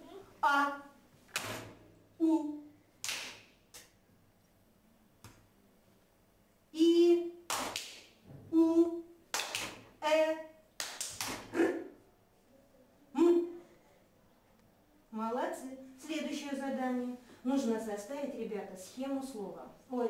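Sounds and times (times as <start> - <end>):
woman voicing drawn-out vowel: 2.2 - 2.7, 6.8 - 7.4, 8.6 - 9.1, 13.1 - 13.6
children clapping: 3.0 - 3.4, 7.5 - 8.0, 9.3 - 9.8, 10.8 - 11.5.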